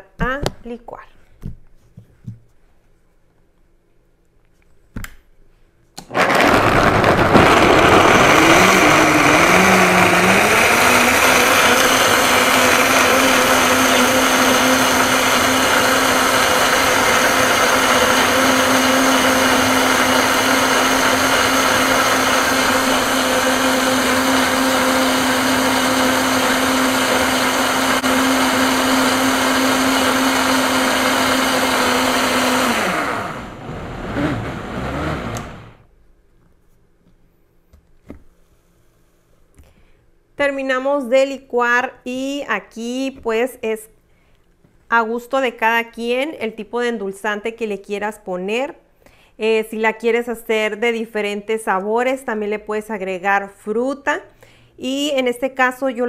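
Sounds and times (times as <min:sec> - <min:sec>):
blender clicks: 0:06.0 - 0:35.7
blender motor running: 0:06.1 - 0:35.8.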